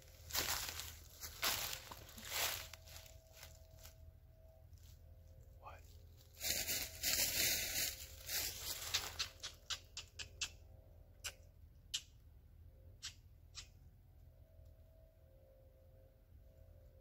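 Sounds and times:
dry leaves rustling: 0.0 - 4.0, 5.8 - 9.4
crunches in leaf litter: 0.2 - 3.5, 6.2 - 9.2.

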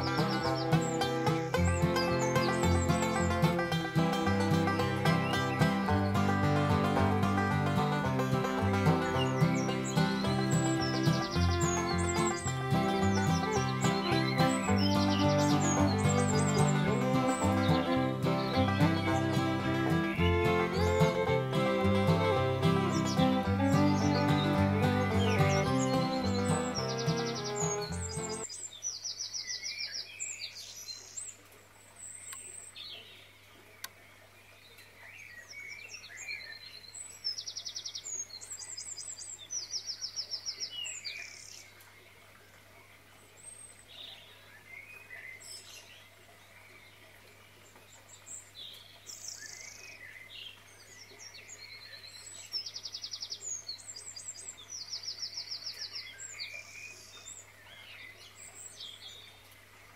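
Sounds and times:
songbirds chirping and singing: 0.0 - 31.1.

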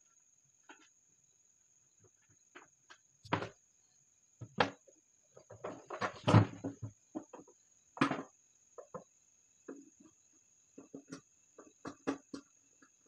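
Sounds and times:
plastic parts clicking and knocking: 10.8 - 13.0.

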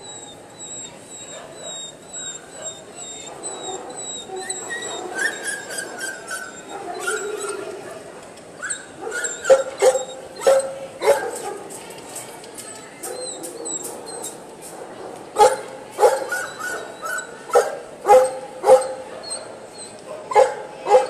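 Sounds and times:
dogs whining and yipping: 0.0 - 7.9, 8.6 - 11.4, 12.8 - 14.4, 15.5 - 21.0
crowd murmur: 0.0 - 21.0.

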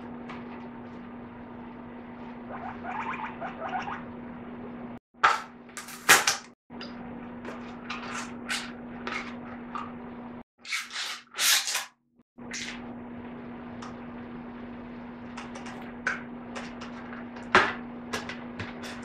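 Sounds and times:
steady low hum: 0.0 - 5.9.

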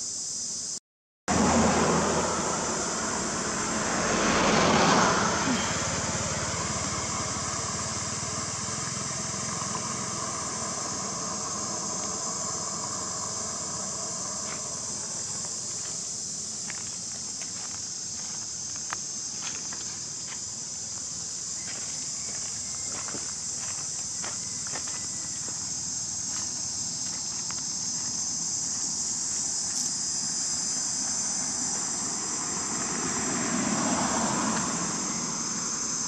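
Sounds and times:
passing vehicle rumble: 1.3 - 36.0
insects shrilling: 1.6 - 36.0
light ticks and scuffs: 29.3 - 30.0.

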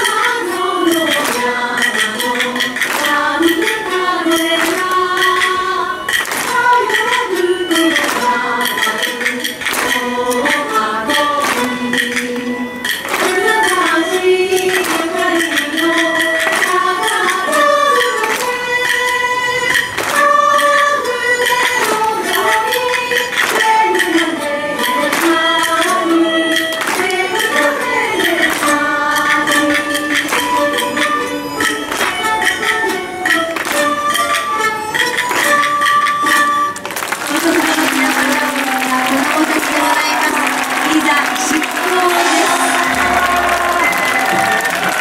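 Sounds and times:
woman singing: 0.0 - 19.0, 20.2 - 30.3, 37.3 - 44.4
sharp percussion strokes: 37.5 - 45.0.

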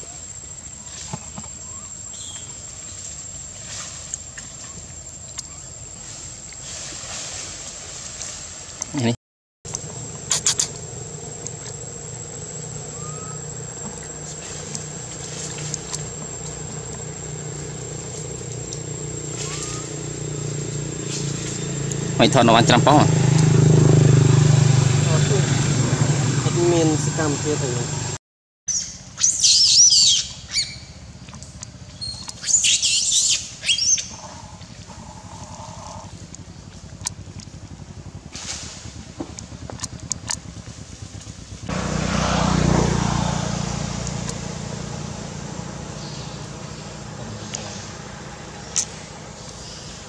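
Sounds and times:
thin high whine: 9.7 - 28.2, 37.3 - 50.0
low mechanical hum: 9.7 - 50.0
short rising chirp: 10.2 - 22.0
baby macaque screaming: 19.4 - 20.0, 29.2 - 30.8.

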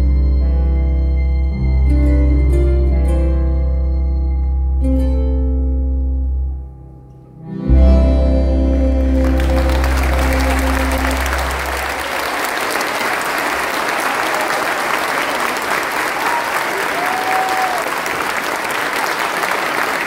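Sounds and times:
band playing chords: 0.0 - 14.5
audience applause: 8.7 - 20.0.

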